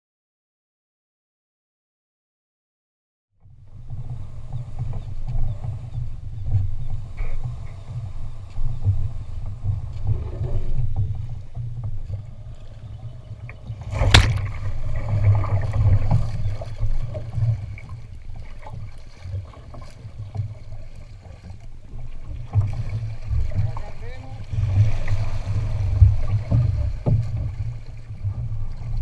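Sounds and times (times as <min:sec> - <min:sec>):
low rumble: 0:03.4 - 0:29.0
water lapping against boat hull: 0:03.4 - 0:29.0
sharp knock on boat: 0:13.6 - 0:17.5, 0:22.3 - 0:27.9.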